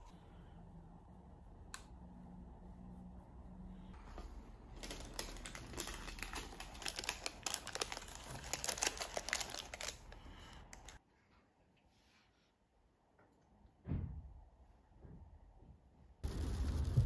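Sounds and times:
paper wrapper crinkling: 4.2s - 11.0s.

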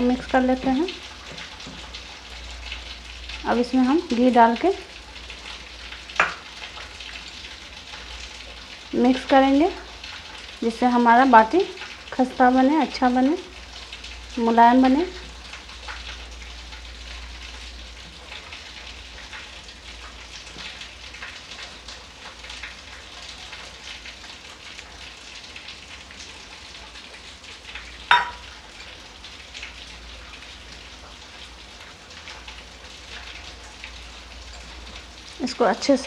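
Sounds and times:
metal clink against steel bowl: 28.1s - 28.5s.

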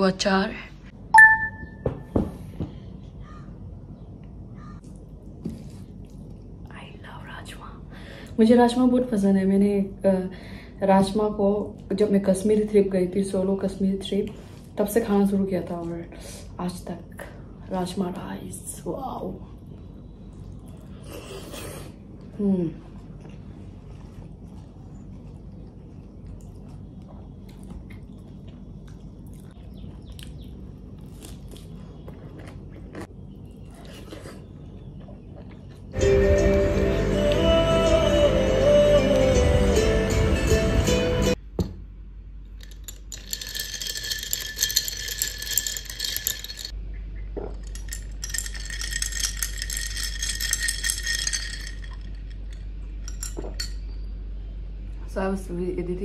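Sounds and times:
chewing rice: 20.3s - 36.0s
steady low hum: 41.3s - 56.0s
ice cubes clinking in glass jar: 42.6s - 46.8s, 47.5s - 53.8s.

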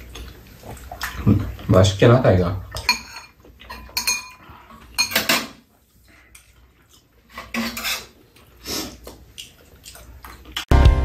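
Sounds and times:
utensils clinking against ceramic bowls: 2.8s - 4.4s, 5.0s - 5.6s
utensils scraping bowls: 7.3s - 8.2s.

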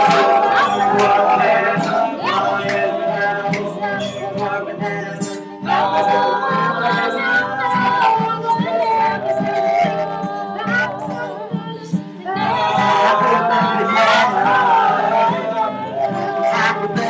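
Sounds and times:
group of voices singing: 0.0s - 17.0s
strummed acoustic guitar: 0.0s - 17.0s.

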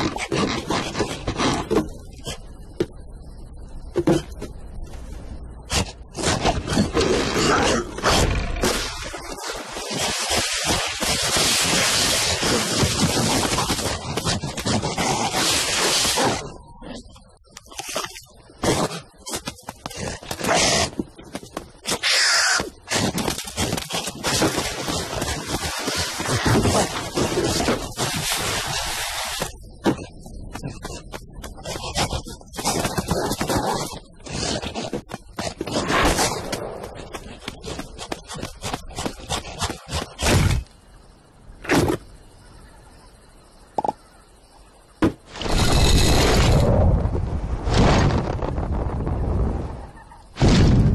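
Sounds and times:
scuffing cartoon footsteps: 17.6s - 28.3s, 29.4s - 40.8s.

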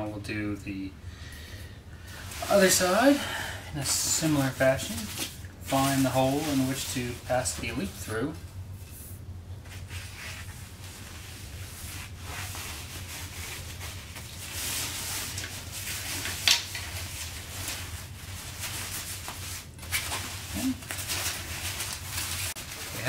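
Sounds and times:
fabric rubbing against metal rod: 9.6s - 23.0s.

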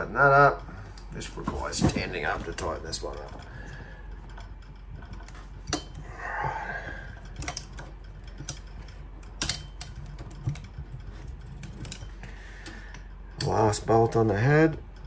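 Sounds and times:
faint low hum: 0.0s - 15.0s
hex driver metallic clicks: 7.1s - 14.3s.

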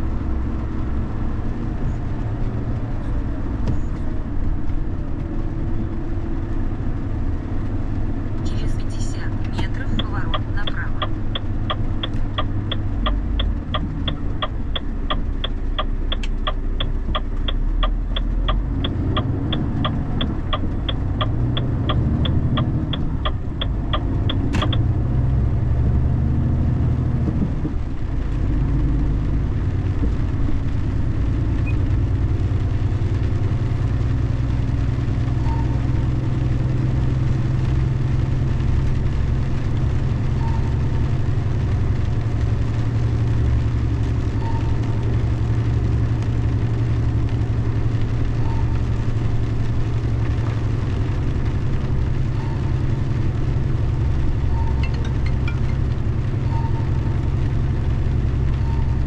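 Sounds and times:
car engine and tyres humming: 0.0s - 59.0s
turn-signal indicator ticking: 8.5s - 25.0s, 54.5s - 56.9s.

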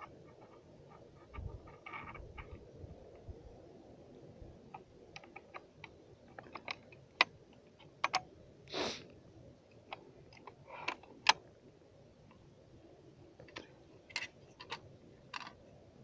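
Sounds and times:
metal parts clicking and knocking: 13.4s - 15.6s.

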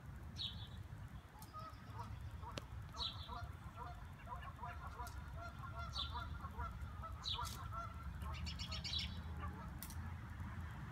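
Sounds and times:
low steady rumble: 0.0s - 10.9s
birds calling: 0.4s - 9.8s
bird trill: 1.4s - 9.3s.

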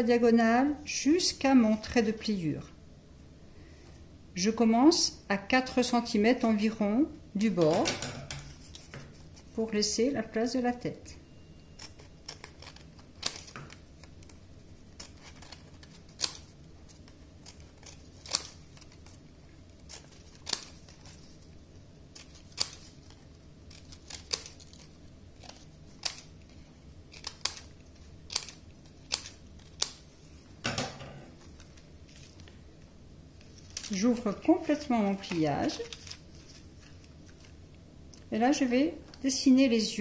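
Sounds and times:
scissors snipping paper: 11.8s - 19.2s, 19.8s - 21.3s, 22.1s - 26.4s, 27.1s - 30.1s.

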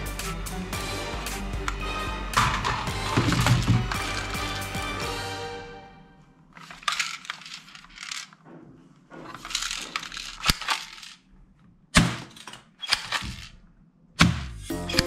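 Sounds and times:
plastic toys rattling in box: 2.5s - 4.4s, 6.6s - 8.4s, 9.3s - 11.2s
sharp plastic clacks: 9.3s - 11.2s.

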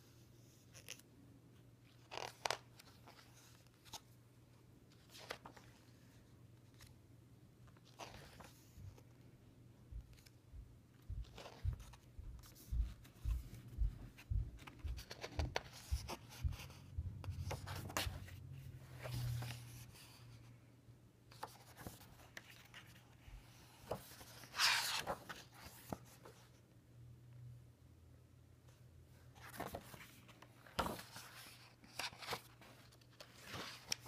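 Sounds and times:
paper rubbing and rustling: 21.3s - 26.4s, 29.4s - 34.0s
page turning swish: 23.8s - 26.1s.

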